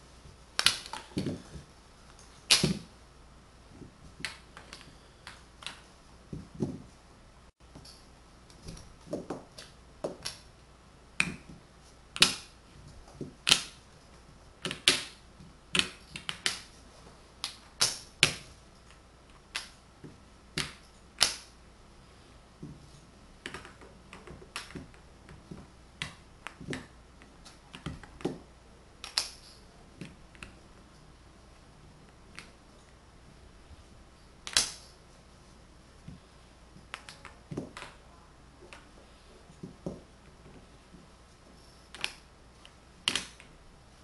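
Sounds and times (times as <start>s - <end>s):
wooden blocks clicking and knocking: 13.2s - 13.8s, 14.6s - 16.7s, 23.4s - 30.6s, 34.4s - 34.9s, 36.8s - 38.0s, 41.9s - 43.6s.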